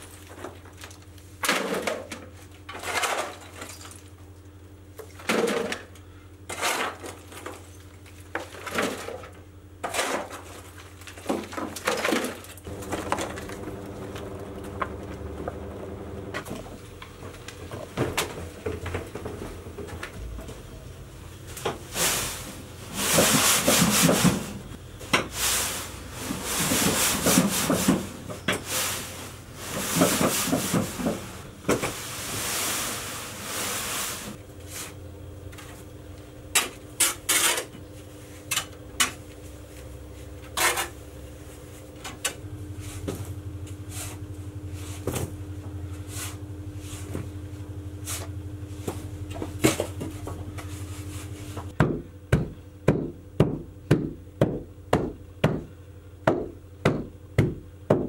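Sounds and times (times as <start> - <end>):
shovel scraping damp sand: 31.9 - 35.0.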